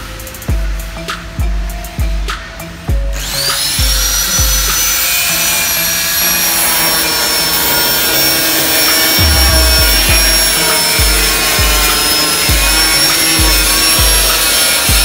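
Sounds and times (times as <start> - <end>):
background music with drum beat: 0.0 - 15.0
electric power tool whining: 3.1 - 15.0.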